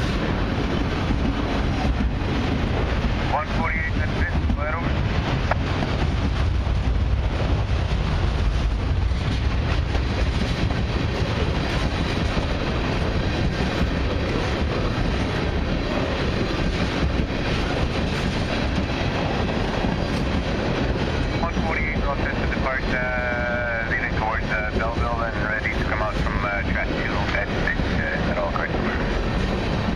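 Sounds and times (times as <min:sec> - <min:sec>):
freight train wheels on rails: 0:00.0 - 0:29.9.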